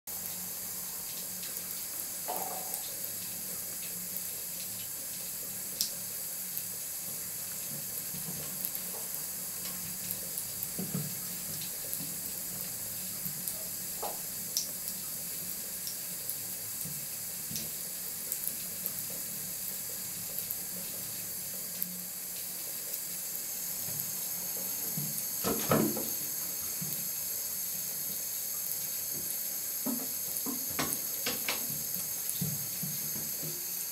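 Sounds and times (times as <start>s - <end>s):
tap running into bathtub: 1.1s - 4.0s, 7.0s - 15.0s, 16.8s - 17.9s, 23.8s - 27.2s, 28.0s - 33.8s.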